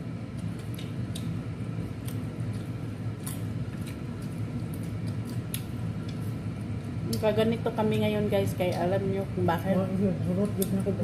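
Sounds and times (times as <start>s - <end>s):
steady low hum: 0.0s - 11.0s
chewing and mouth smacks: 0.2s - 7.2s.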